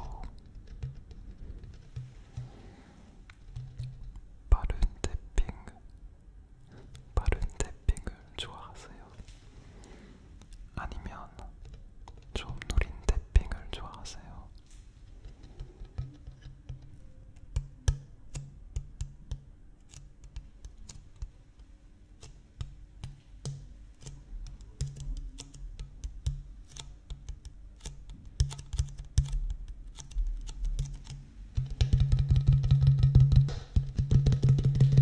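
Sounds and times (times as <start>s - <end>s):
fingertips tapping plastic bottle: 0.0s - 2.6s, 3.3s - 4.2s, 11.4s - 14.1s, 15.1s - 35.0s.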